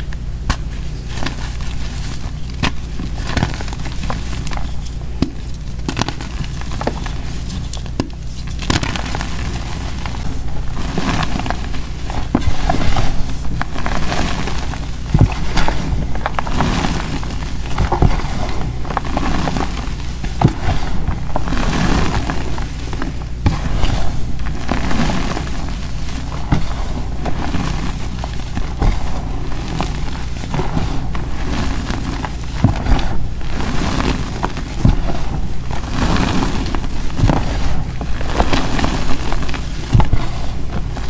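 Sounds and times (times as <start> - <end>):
small crackles: 0.0 - 41.0
dull thuds: 0.4 - 41.0
chalk crunching in hands: 0.5 - 41.0.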